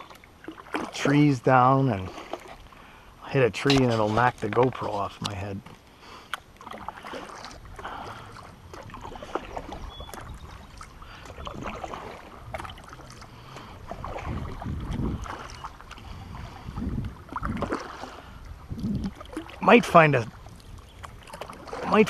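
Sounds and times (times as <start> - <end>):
kayak paddle pulling through water: 0.0 - 22.0
splashes and drips: 0.0 - 22.0
wind buffeting microphone: 7.6 - 22.0.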